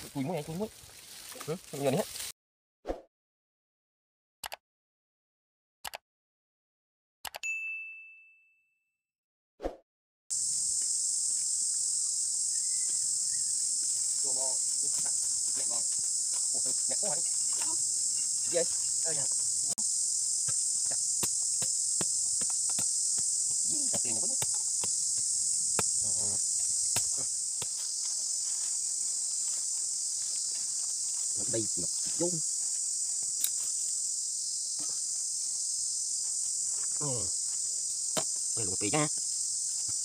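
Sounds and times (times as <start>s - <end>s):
high-pitched insect chorus: 0.0s - 2.3s, 10.3s - 40.0s.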